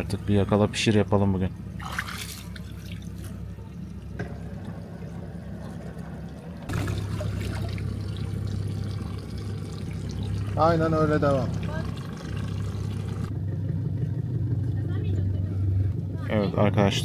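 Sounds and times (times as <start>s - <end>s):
boat engine running slowly: 0.0s - 17.0s
water gurgling and lapping: 1.7s - 13.3s.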